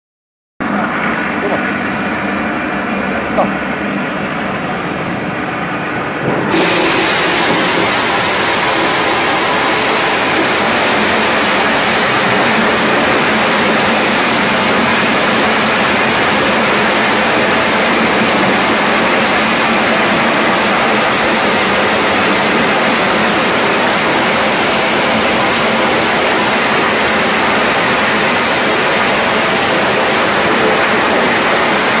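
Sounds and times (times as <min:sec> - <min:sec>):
corn sheller rattling: 0:06.5 - 0:32.0.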